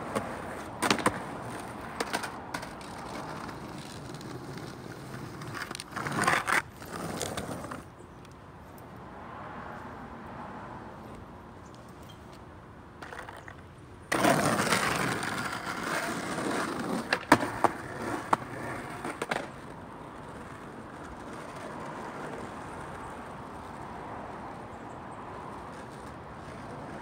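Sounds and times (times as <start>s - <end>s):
skateboard clacks: 0.0s - 7.9s, 13.0s - 23.8s, 25.5s - 27.0s
skateboard wheels rolling on asphalt: 0.0s - 27.0s.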